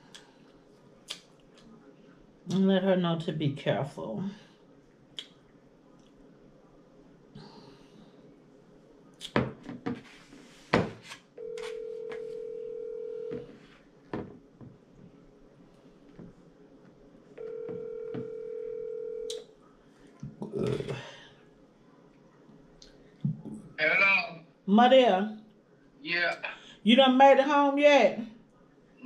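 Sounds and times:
phone ringback tone: 0:11.4 - 0:13.6, 0:17.4 - 0:19.3.

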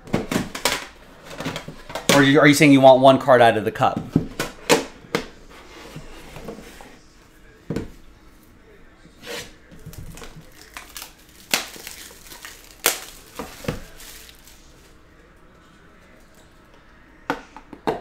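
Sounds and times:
plastic wrap tearing and crinkling: 0:09.8 - 0:15.0.

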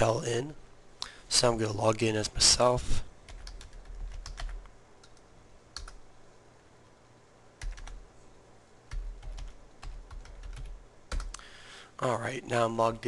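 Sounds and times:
keyboard typing: 0:03.3 - 0:06.0, 0:07.6 - 0:08.0, 0:08.9 - 0:11.4.

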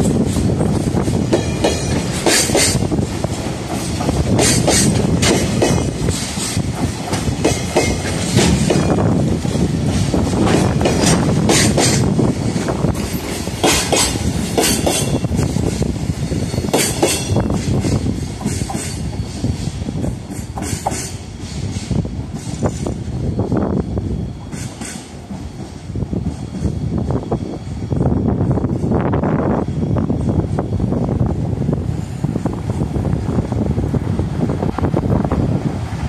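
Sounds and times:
wheels clacking over rail joints: 0:00.0 - 0:15.9
freight train wheels rumbling: 0:00.0 - 0:36.0.

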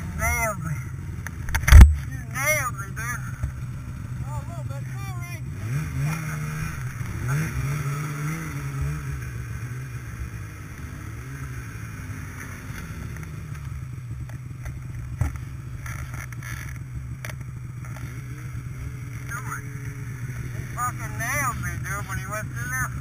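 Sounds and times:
snowmobile engines running: 0:00.0 - 0:23.0
sharp click: 0:01.2 - 0:02.0.

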